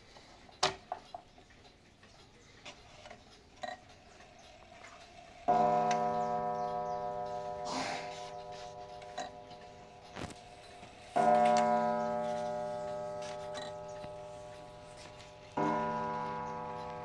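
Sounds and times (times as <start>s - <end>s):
faint clock clicks: 0.0s - 17.0s
clock gong ringing: 4.8s - 17.0s.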